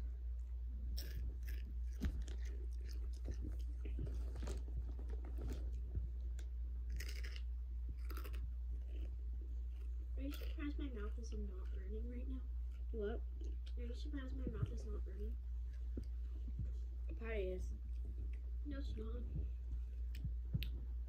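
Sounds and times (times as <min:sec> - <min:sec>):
steady low hum: 0:00.0 - 0:21.0
person chewing crunchy chips: 0:00.8 - 0:11.8.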